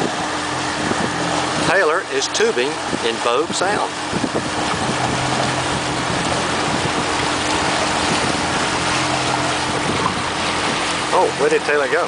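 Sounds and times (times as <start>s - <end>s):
churning water: 0.0s - 12.0s
motorboat engine humming: 0.0s - 12.0s
wind rushing: 3.9s - 11.1s.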